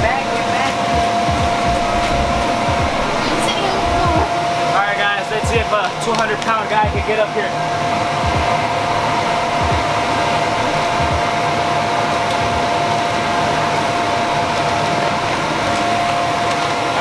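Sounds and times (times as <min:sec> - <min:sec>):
electric blower rushing and whining: 0:00.0 - 0:17.0.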